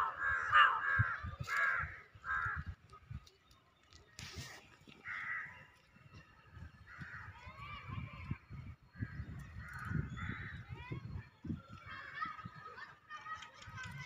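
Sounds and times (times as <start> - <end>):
bird cawing: 0.0 - 2.7, 5.0 - 5.6
rustling noise: 3.9 - 5.2.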